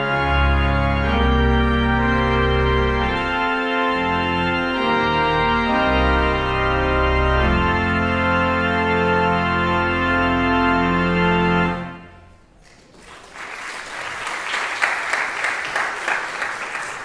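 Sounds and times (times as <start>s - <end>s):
pipe organ chord: 0.0s - 12.4s
audience applause: 12.6s - 17.0s.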